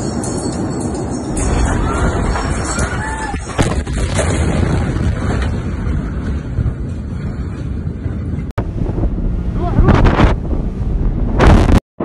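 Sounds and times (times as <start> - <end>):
explosion bang: 3.4 - 5.6, 8.6 - 11.8.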